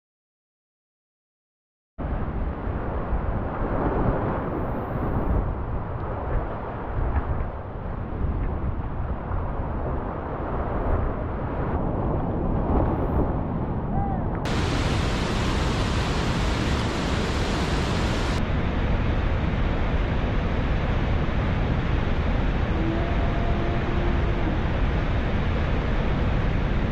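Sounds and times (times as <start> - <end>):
waterfall roar: 14.5 - 26.9.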